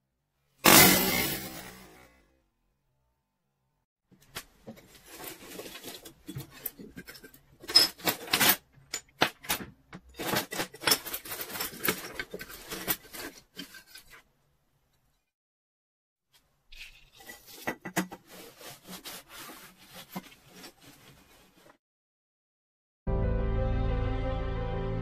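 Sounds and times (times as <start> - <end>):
plastic shell pieces clattering: 5.0 - 14.2.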